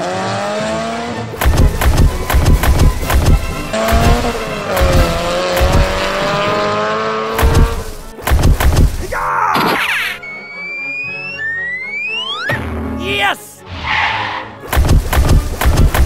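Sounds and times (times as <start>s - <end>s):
thudding beat: 1.4s - 6.5s, 7.4s - 9.3s, 14.6s - 16.0s
cartoon squeal: 9.2s - 13.4s
rising whistle glides: 10.1s - 12.5s.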